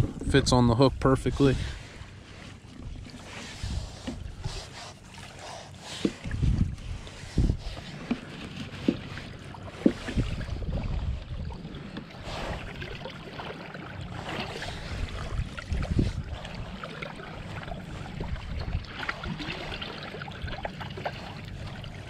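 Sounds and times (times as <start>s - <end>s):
wind buffeting microphone: 0.0s - 2.1s, 2.8s - 4.7s, 6.1s - 13.0s, 14.4s - 19.7s.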